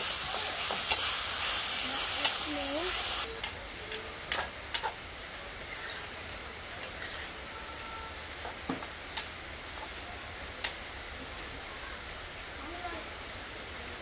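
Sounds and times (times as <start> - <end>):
metal spatula scraping a wok: 5.6 - 6.2, 6.8 - 7.5.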